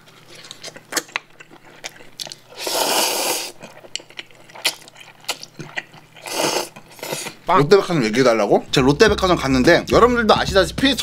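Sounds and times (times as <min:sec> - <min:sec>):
wet chewing: 0:00.0 - 0:07.5
loud slurp of noodles: 0:02.5 - 0:03.6, 0:06.2 - 0:07.4.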